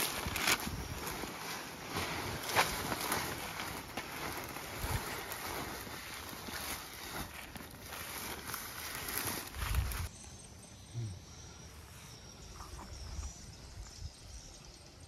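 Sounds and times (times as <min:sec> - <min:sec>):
wind rumbling on microphone: 0:00.0 - 0:06.8, 0:08.8 - 0:10.1
footsteps through grass: 0:00.0 - 0:10.1.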